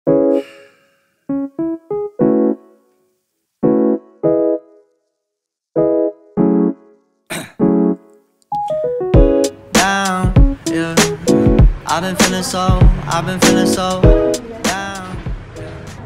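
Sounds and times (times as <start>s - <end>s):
solo piano chords: 0.1s - 0.6s, 1.3s - 2.9s, 3.6s - 4.9s, 5.8s - 7.0s, 7.6s - 15.1s.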